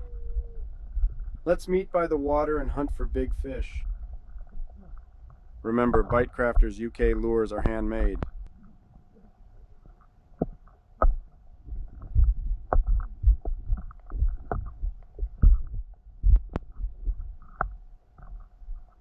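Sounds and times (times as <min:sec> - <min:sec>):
faint steady hum: 0:00.0 - 0:19.0
muffled underwater thumps: 0:00.4 - 0:01.4, 0:03.6 - 0:08.5, 0:10.4 - 0:19.0.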